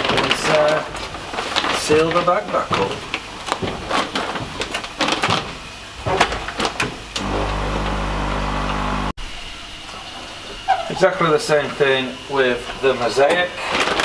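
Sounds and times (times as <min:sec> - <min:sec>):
bag sealer humming: 0:07.2 - 0:09.1.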